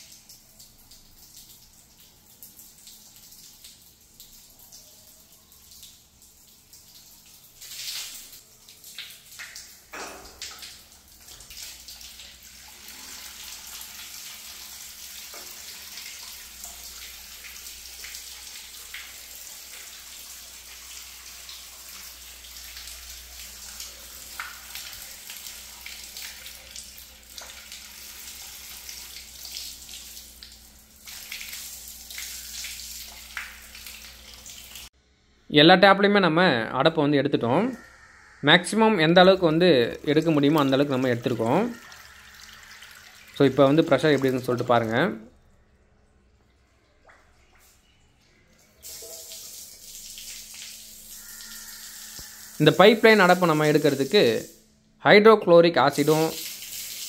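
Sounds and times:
water spraying from a tap: 0.0s - 34.9s, 39.2s - 45.3s, 48.7s - 54.6s, 55.8s - 57.0s
pipe knocks and splashes: 9.9s - 10.7s.

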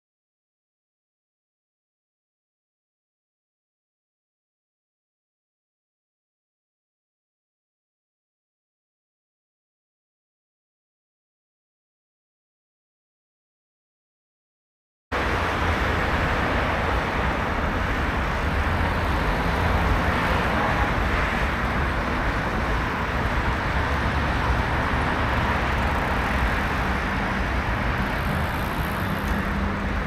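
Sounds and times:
road traffic noise: 15.1s - 30.0s.

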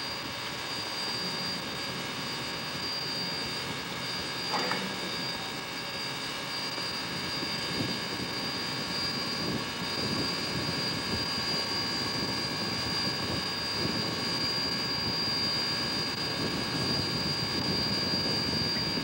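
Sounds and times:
steam locomotive hissing: 0.0s - 10.2s
thin high whine: 0.0s - 19.0s.

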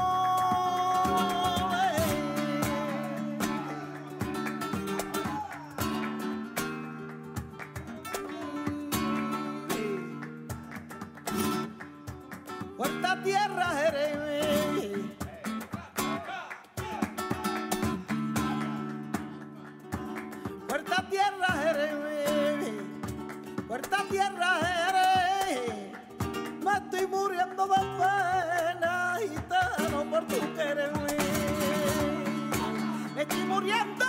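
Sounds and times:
woman singing: 0.0s - 4.0s, 8.4s - 10.2s, 12.8s - 15.2s, 20.7s - 23.0s, 23.7s - 26.0s, 26.6s - 34.0s
flamenco guitar: 0.0s - 34.0s
sharp hand clapping: 0.0s - 34.0s.

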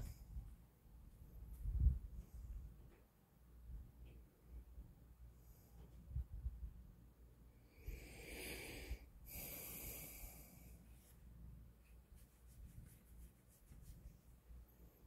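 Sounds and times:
soft breathing: 5.2s - 6.4s, 7.6s - 12.0s.

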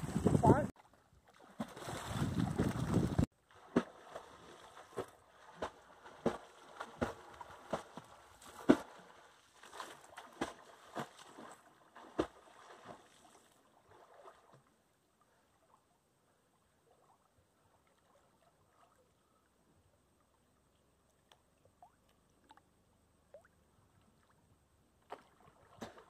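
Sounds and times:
water splashing: 0.0s - 14.7s, 25.0s - 26.0s.

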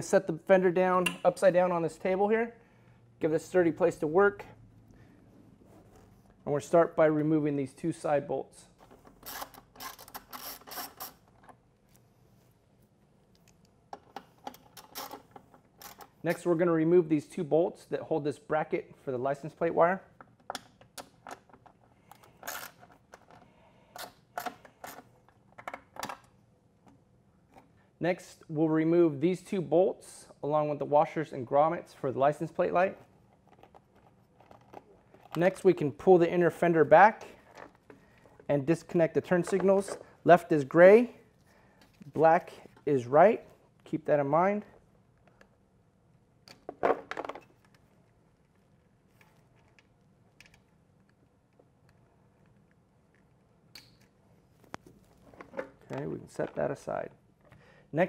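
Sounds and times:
tool scraping plastic: 8.8s - 11.5s.

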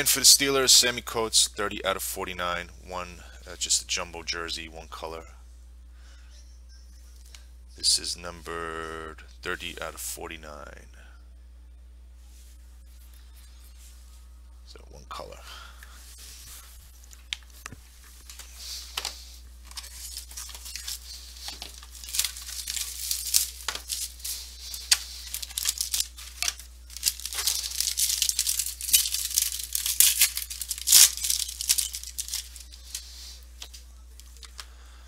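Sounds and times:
plastic wrapping tearing and crinkling: 17.0s - 34.6s.

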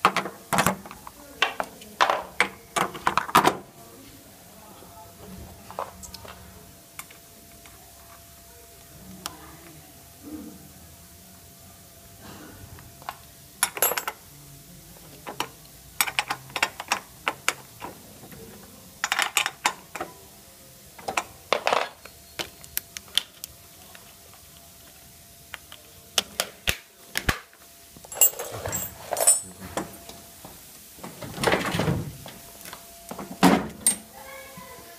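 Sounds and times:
parts clicking and rattling: 15.2s - 20.1s, 28.0s - 30.2s.

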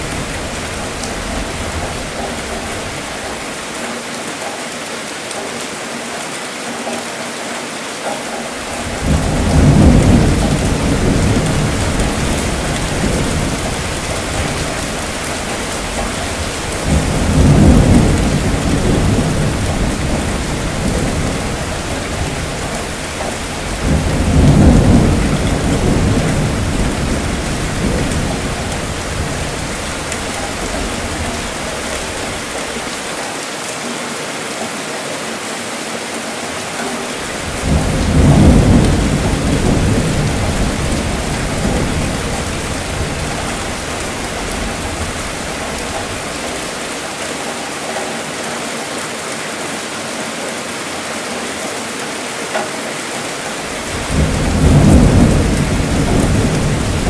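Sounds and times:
rain hissing: 0.0s - 4.3s, 8.3s - 33.6s, 36.2s - 52.0s, 52.6s - 57.0s
thunder rolling: 8.6s - 32.8s, 37.3s - 46.8s, 53.8s - 57.0s.

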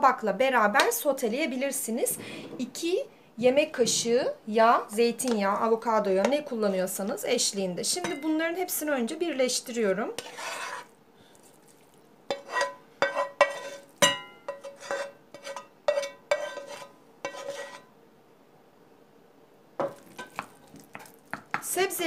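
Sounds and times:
spoon scraping and knocking on pan: 10.1s - 17.9s, 19.8s - 21.7s.

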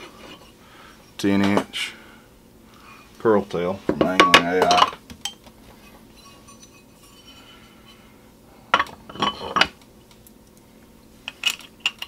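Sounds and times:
metal plates clinking: 4.0s - 7.6s, 8.8s - 9.8s.

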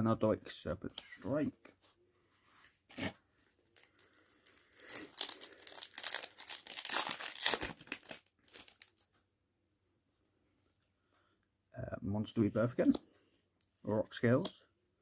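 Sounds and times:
foil wrapper crinkling and tearing: 3.7s - 9.0s.

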